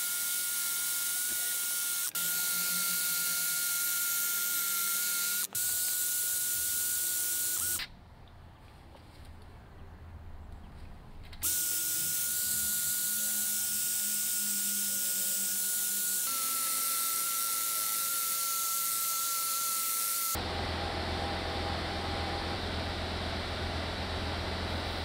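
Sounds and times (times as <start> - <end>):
drill motor whine: 0.0 - 7.9, 11.4 - 24.7.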